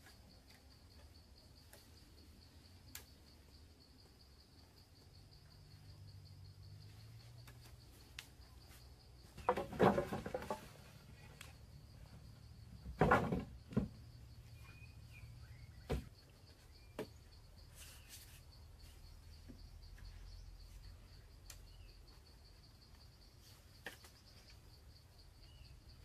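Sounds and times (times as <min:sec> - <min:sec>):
high insect drone: 0:00.0 - 0:26.0
wooden poles knocking and clattering: 0:09.2 - 0:14.7, 0:15.6 - 0:17.4.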